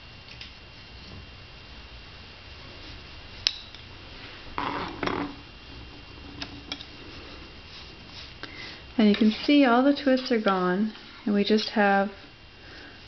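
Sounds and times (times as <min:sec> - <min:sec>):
rustling scrape of yarn: 0:07.0 - 0:08.4.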